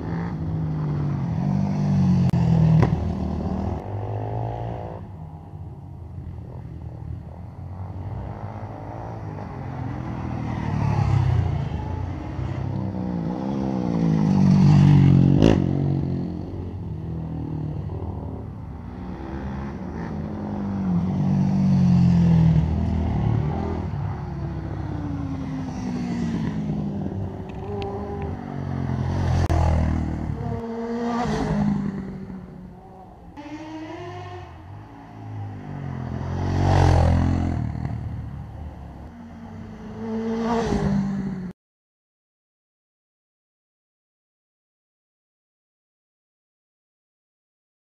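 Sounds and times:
quad bike engines passing: 0:00.0 - 0:41.5.

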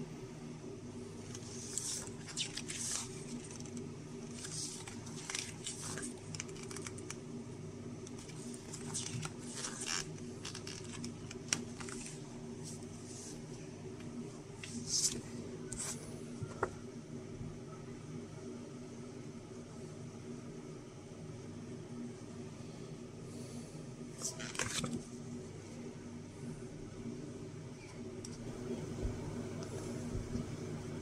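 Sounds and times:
paper pages rustling and flicking: 0:01.3 - 0:07.2, 0:08.1 - 0:13.4, 0:14.6 - 0:16.0, 0:24.2 - 0:25.0.

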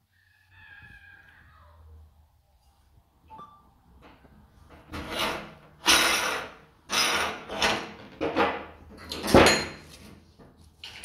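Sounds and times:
metal grinder parts scraping: 0:04.9 - 0:08.6.

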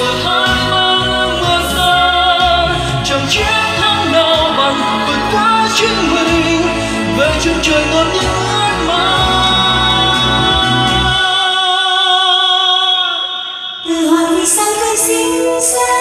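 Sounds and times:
pop ballad over pa: 0:00.0 - 0:16.0
held synth chords: 0:00.5 - 0:11.2.

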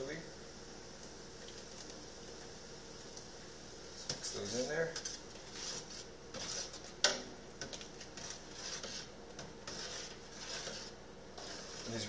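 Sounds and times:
spoon scraping a stockpot: 0:04.1 - 0:12.0.

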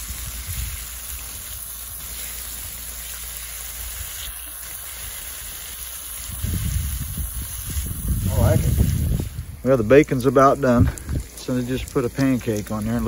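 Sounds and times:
bacon sizzling: 0:00.0 - 0:13.0.

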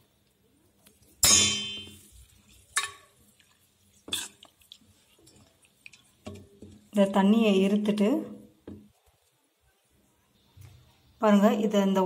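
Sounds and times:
metal vessel clanging: 0:01.2 - 0:02.1
metal vessel clinking: 0:01.2 - 0:02.1.

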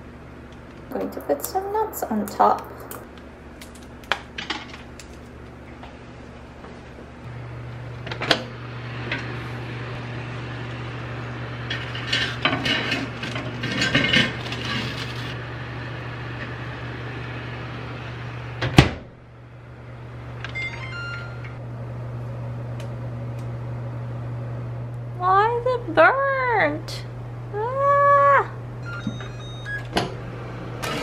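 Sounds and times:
microwave oven humming: 0:00.0 - 0:31.0
oven door shutting: 0:18.5 - 0:19.2, 0:28.8 - 0:31.0
short electronic beeps: 0:28.8 - 0:29.9.

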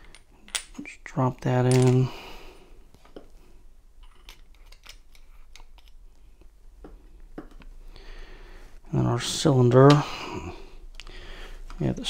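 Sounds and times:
small clicks and taps of lock parts: 0:04.0 - 0:06.0.

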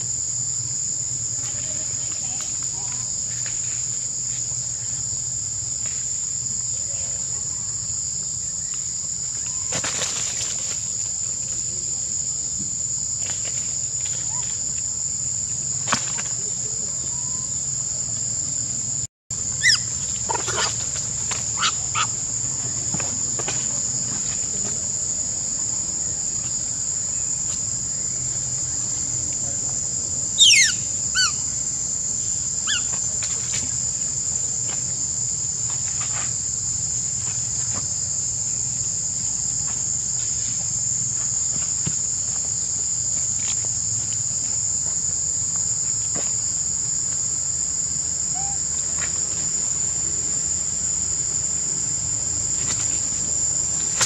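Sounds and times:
insects singing drone: 0:00.0 - 0:54.0
sharp falling calls: 0:30.4 - 0:31.4.

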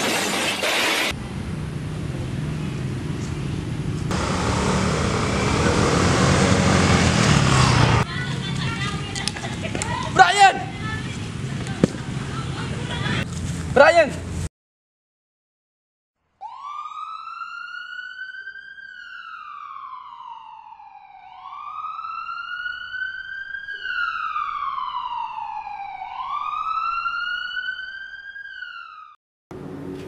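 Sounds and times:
ambulance siren wailing: 0:04.1 - 0:08.1, 0:16.4 - 0:29.2.

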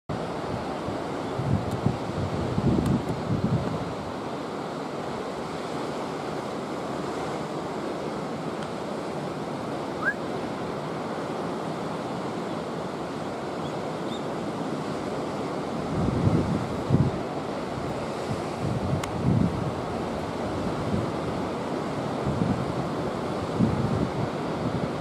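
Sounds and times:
wind buffeting microphone: 0:00.5 - 0:04.1, 0:15.8 - 0:21.6, 0:22.2 - 0:25.0
short rising chirp: 0:10.0 - 0:10.2.

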